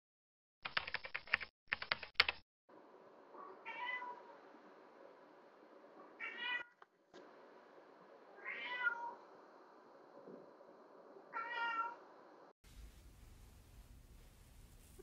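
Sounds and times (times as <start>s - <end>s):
cat meowing: 3.4s - 4.2s, 6.2s - 6.8s, 8.4s - 9.2s, 11.3s - 12.0s.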